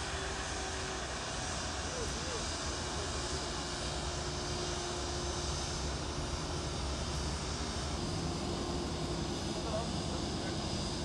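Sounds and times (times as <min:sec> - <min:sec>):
jet engines running steadily: 0:00.0 - 0:11.0.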